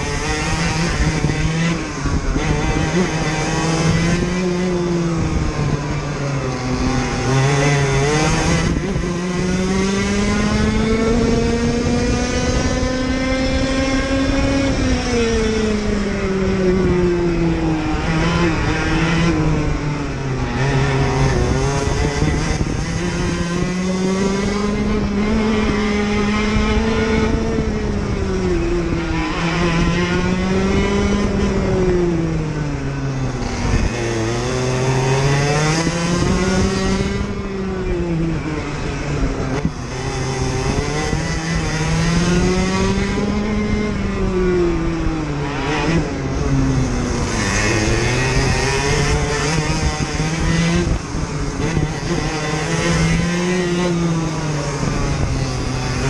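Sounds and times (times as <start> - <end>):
kart two-stroke engine racing: 0.0 - 56.0
tyre and road noise: 0.0 - 56.0.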